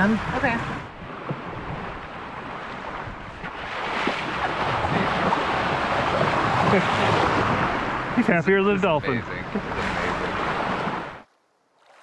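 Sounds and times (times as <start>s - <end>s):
wind buffeting microphone: 0.0s - 8.2s
water rushing along a hull: 0.0s - 12.0s.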